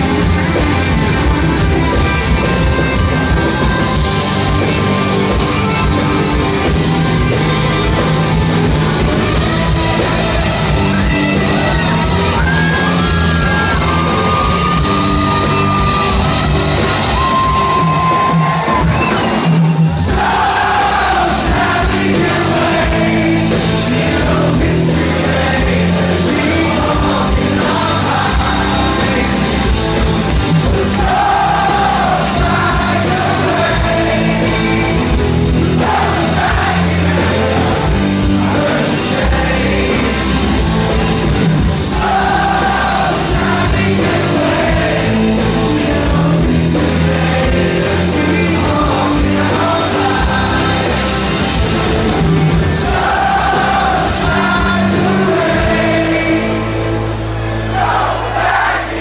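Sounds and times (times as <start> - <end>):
electric guitars: 0.0 - 58.0
bass guitar: 0.0 - 59.0
drums: 0.0 - 59.0
man singing lead: 20.0 - 30.0, 30.8 - 40.8, 41.8 - 51.6, 52.6 - 57.0.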